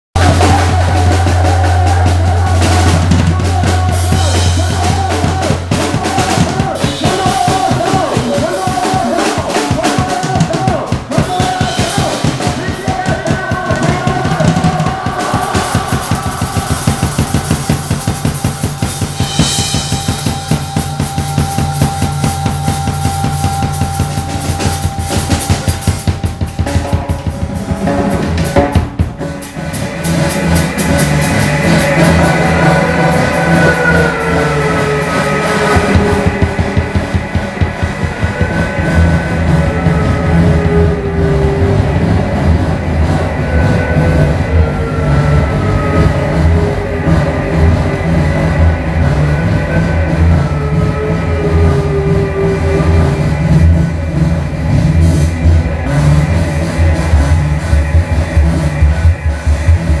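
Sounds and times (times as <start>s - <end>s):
drum kit played fast: 0.1s - 60.0s
low electronic drone: 0.2s - 8.6s, 11.6s - 60.0s
wavering electronic tone: 15.8s - 26.8s.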